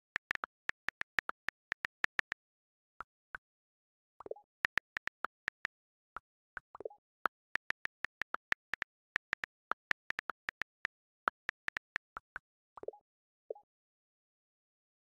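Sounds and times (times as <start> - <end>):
lower longer keyboard sound: 0.0 - 2.4, 4.5 - 5.7, 7.2 - 12.2
phone keyboard taps: 0.0 - 2.4, 4.7 - 5.7, 7.3 - 12.0.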